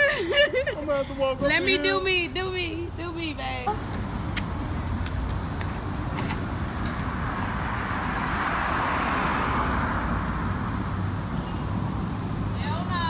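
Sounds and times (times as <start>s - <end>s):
scooter road rumble: 2.2s - 13.0s
passing car hiss: 6.3s - 13.0s.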